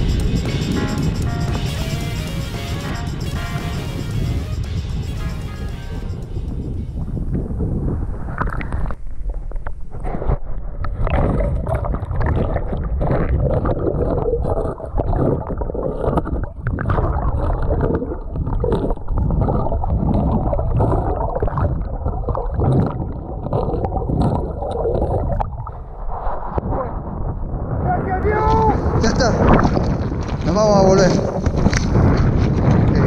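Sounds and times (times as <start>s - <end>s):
muffled underwater river rush: 7.0s - 33.0s.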